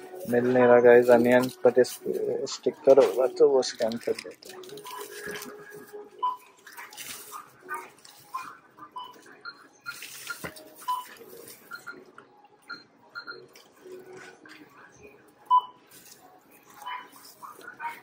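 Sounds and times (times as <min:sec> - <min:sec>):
rustling of produce and bags: 0:00.0 - 0:18.0
short electronic beeps: 0:08.9 - 0:13.5.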